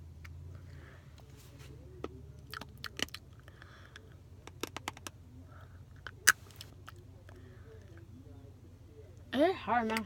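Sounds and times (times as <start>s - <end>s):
dry macaroni clicking and cracking: 2.5s - 3.3s.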